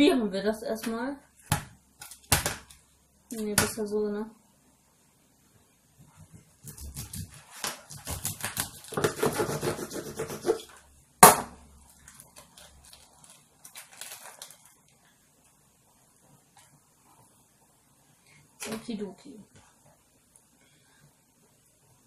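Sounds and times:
knife sawing through tofu: 9.0s - 10.7s.

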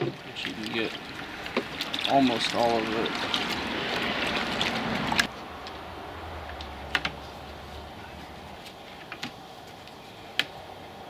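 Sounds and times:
water sloshing in bucket: 0.0s - 5.3s.

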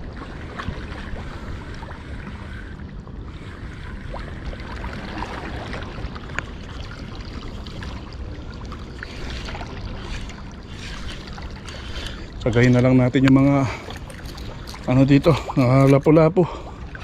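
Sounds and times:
sea water lapping on rocks: 4.2s - 17.0s.

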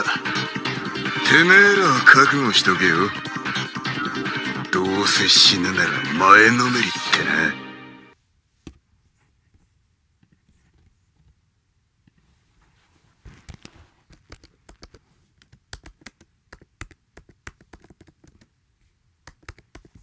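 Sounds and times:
faint irregular clicks: 13.4s - 18.6s, 19.2s - 20.0s.

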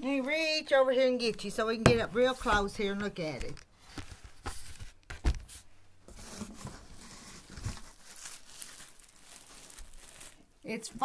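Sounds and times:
plastic wrapping crinkling: 6.3s - 11.0s.

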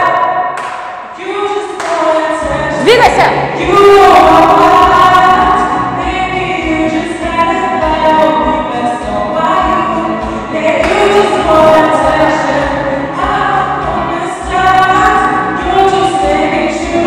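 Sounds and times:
man singing into a microphone: 3.5s - 17.0s.

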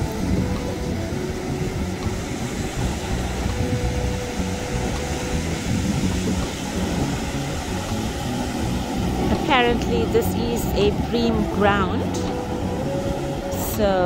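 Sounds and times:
surf rumbling: 0.0s - 14.0s
wind on microphone: 0.0s - 14.0s.

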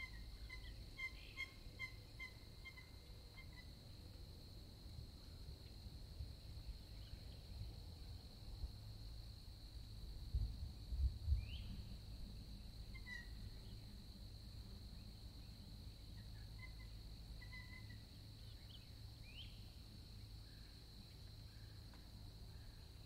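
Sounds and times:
faint bird calls: 0.0s - 3.7s, 12.9s - 13.8s, 16.2s - 19.6s
high insect drone: 0.0s - 23.0s.

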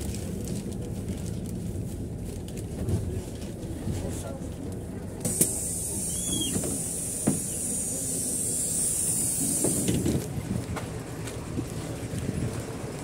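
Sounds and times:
bus engine idling: 0.0s - 13.0s
bus door click: 5.2s - 7.8s, 9.0s - 10.3s
pneumatic door air hiss: 5.2s - 10.0s.

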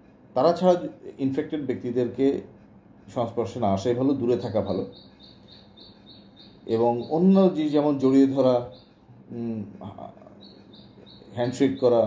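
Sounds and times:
faint high chirps: 4.3s - 12.0s.

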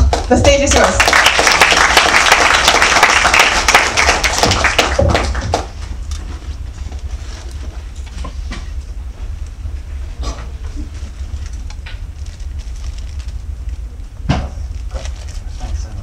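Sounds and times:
audience applause: 0.0s - 5.8s
low steady hum: 0.0s - 16.0s.

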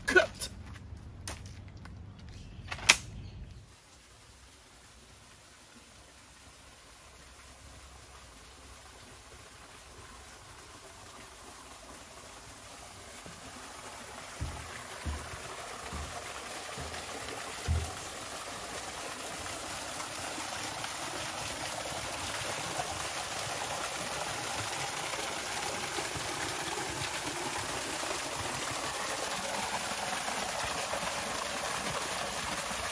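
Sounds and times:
waterfall splashing into pond: 3.7s - 32.9s
low thumps: 14.3s - 18.2s.

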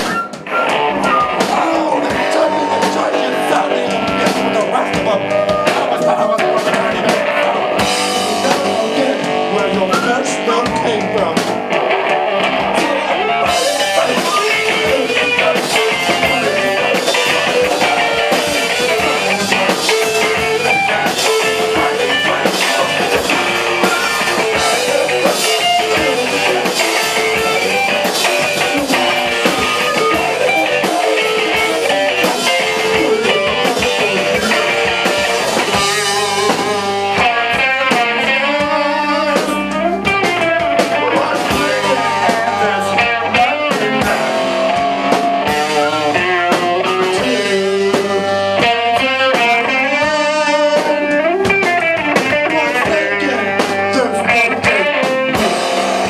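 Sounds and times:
flute playing: 0.0s - 6.4s, 13.1s - 37.0s
drum kit: 0.0s - 56.0s
electric guitar: 0.0s - 56.0s.

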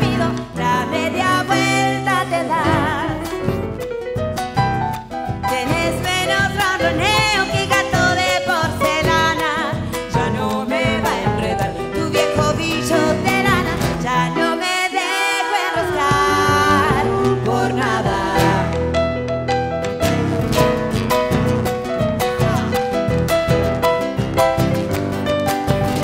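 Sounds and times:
wordless vocals: 0.0s - 3.6s, 5.5s - 19.0s
live folk band playing: 0.0s - 26.0s.

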